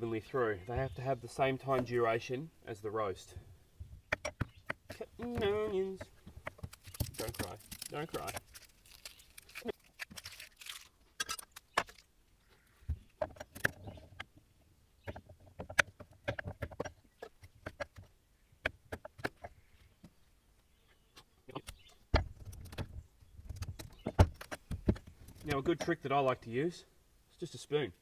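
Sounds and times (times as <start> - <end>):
onion skin rustling: 5.2 - 12.1.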